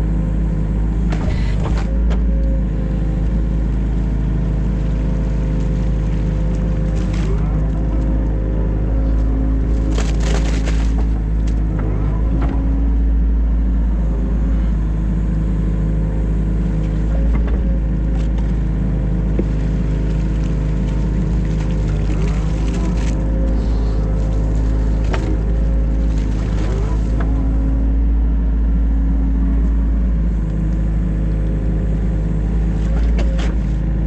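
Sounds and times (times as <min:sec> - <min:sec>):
excavator diesel engine running: 0:00.0 - 0:34.0
excavator bucket knocks and scrapes: 0:01.0 - 0:02.3, 0:09.8 - 0:12.8, 0:25.0 - 0:27.5.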